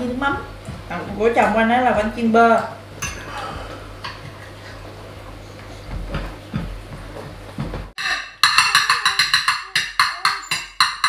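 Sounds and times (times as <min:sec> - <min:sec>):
cutlery clinking on plates: 0:03.0 - 0:04.5
music with quick percussive beat: 0:08.0 - 0:11.0.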